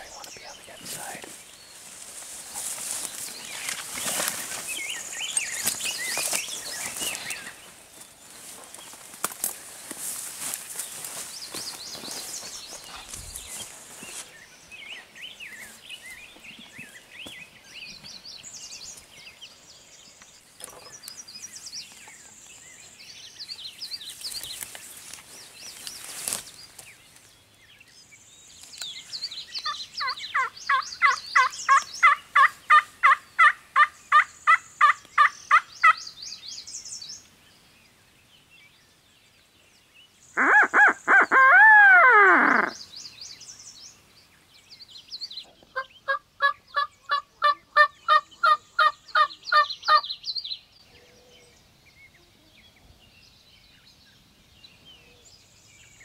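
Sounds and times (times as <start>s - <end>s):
songbirds chirping: 0.0s - 56.0s
turkey gobbling: 40.4s - 42.7s
turkey yelps: 40.4s - 42.8s.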